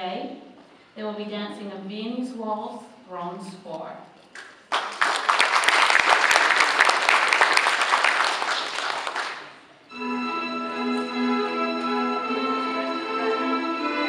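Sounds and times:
audience applauding: 4.4 - 9.7
waltz music over speakers: 9.9 - 14.0.

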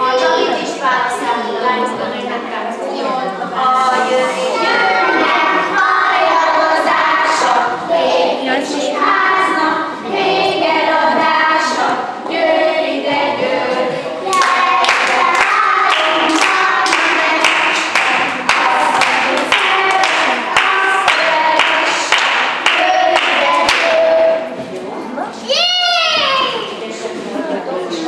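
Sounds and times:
children singing: 2.8 - 24.7
hand clapping in time: 14.3 - 24.0.

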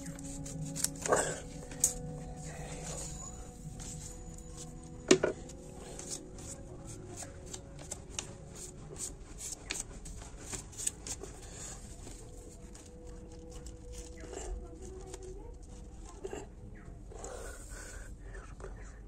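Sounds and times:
paper rustling and crinkling: 5.5 - 16.2.

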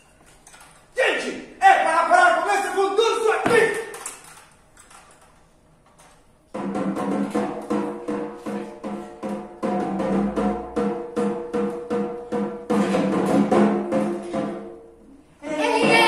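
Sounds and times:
drums in steady rhythm: 6.5 - 15.0.

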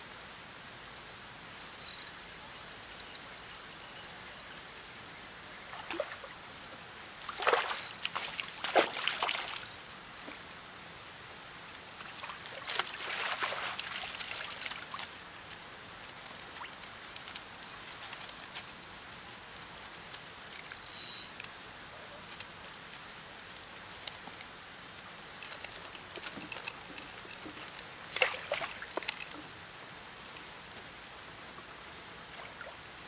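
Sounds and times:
fish splashing in water: 7.3 - 9.7.

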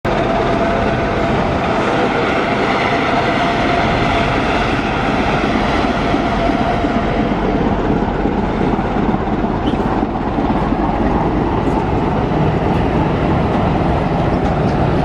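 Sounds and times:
constant whine: 0.1 - 15.0
diesel locomotive engine: 0.1 - 15.0.

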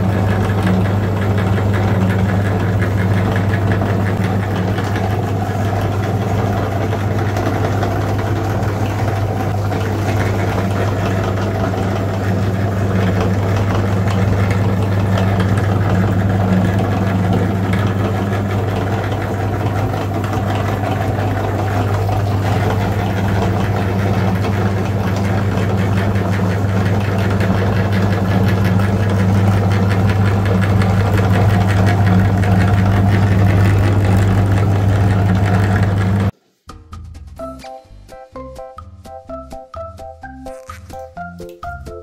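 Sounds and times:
meat grinder humming: 0.0 - 36.4
light background music: 36.7 - 42.0.

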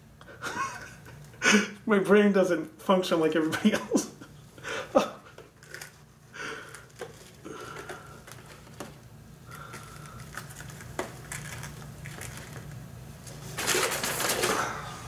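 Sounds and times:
tissue paper rustling: 9.8 - 15.0.

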